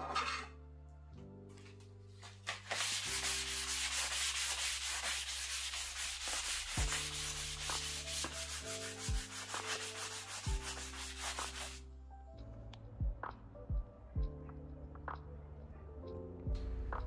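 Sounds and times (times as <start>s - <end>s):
sanding block scraping paint: 2.6s - 11.8s.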